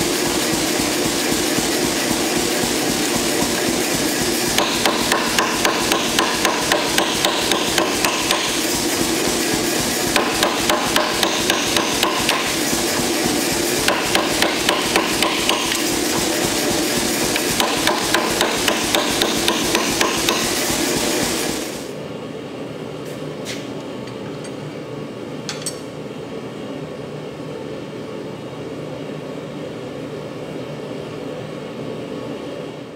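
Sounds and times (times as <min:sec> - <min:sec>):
steady shop noise: 0:00.0 - 0:22.0, 0:25.4 - 0:26.0
power hammer pounding steel: 0:03.2 - 0:21.5.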